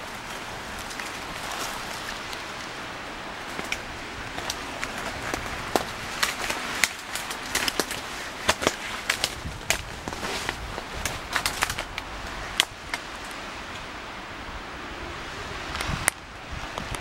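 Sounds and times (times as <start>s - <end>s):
steady outdoor hiss: 0.0s - 17.0s
sharp irregular snaps and clicks: 3.5s - 13.8s.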